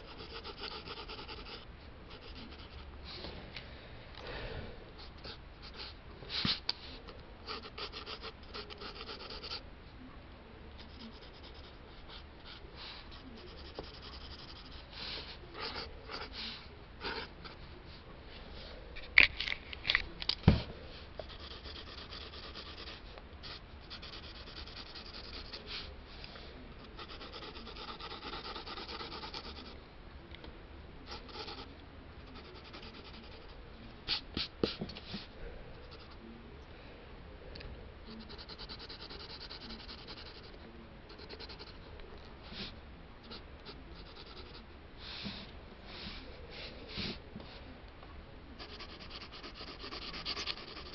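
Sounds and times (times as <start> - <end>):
pencil scratching on paper: 0.0 - 2.9, 7.4 - 9.6, 10.8 - 17.6, 21.2 - 25.9, 26.9 - 29.7, 31.1 - 34.5, 38.1 - 41.8, 43.3 - 44.6, 48.6 - 50.9.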